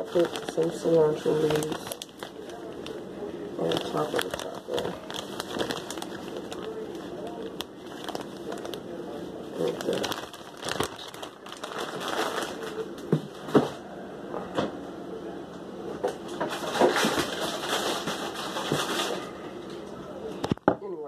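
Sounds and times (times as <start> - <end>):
leaves rustling in hands: 0.0 - 13.0.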